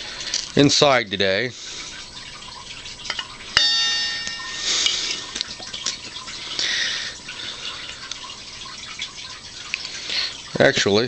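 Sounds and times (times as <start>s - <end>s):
sharp metallic clink: 3.6s - 5.2s.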